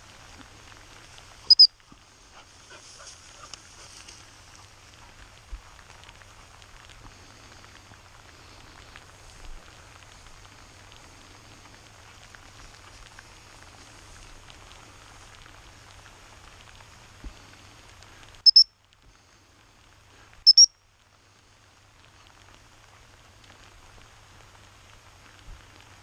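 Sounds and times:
rain pattering on grass: 0:00.0 - 0:26.0
dog whistle blasts: 0:01.5 - 0:01.7, 0:18.4 - 0:18.7, 0:20.4 - 0:20.7.

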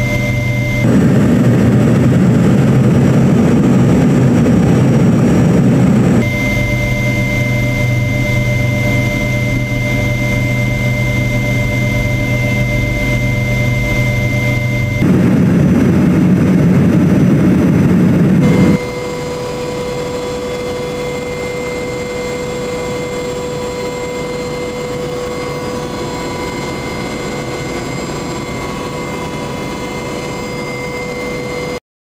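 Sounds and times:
helicopter cabin noise with whine: 0:00.0 - 0:31.8
helicopter engine and rotor noise: 0:00.0 - 0:31.8.

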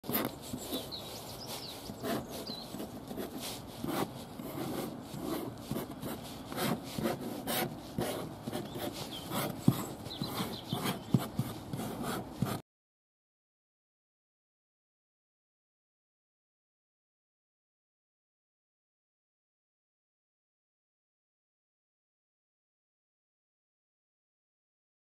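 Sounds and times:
fingertip scratching frost on glass: 0:00.0 - 0:12.6.

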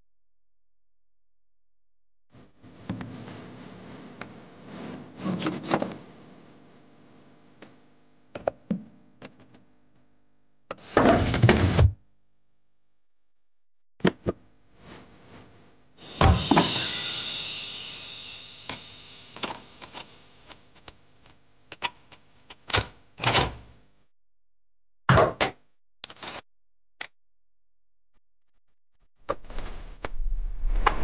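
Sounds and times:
music: 0:16.0 - 0:20.1.

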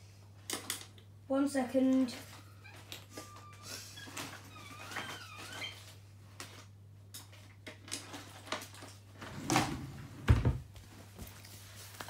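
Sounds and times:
drawers and cupboards knocking: 0:09.2 - 0:10.7.

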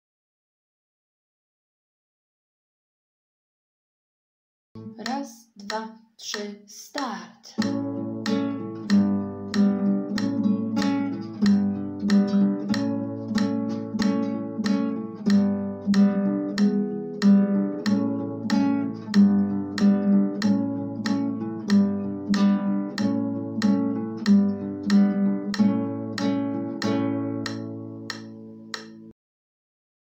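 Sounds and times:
acoustic guitar strumming chords: 0:04.8 - 0:05.8, 0:07.6 - 0:29.1.

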